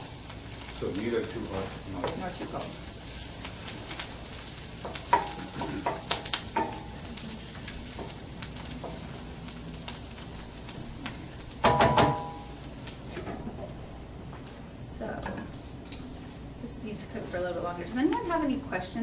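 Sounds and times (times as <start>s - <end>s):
food sizzling in a pan: 0.0s - 13.2s
wooden spoon knocking on pan: 4.8s - 7.0s, 11.6s - 12.5s.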